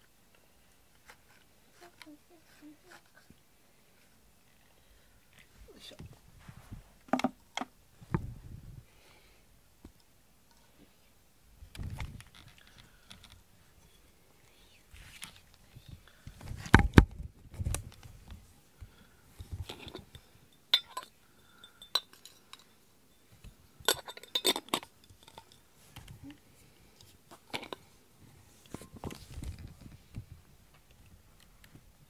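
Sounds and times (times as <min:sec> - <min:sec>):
glass jar clinking: 0:19.7 - 0:23.2, 0:23.8 - 0:25.6.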